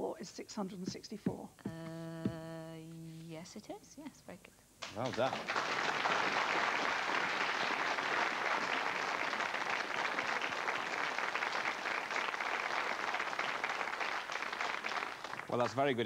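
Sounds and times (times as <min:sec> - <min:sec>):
audience applauding: 0:04.8 - 0:16.0.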